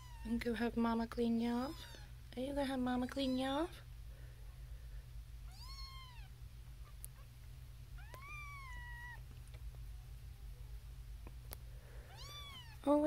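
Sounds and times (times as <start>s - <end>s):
kitten mewing: 8.0s - 9.2s.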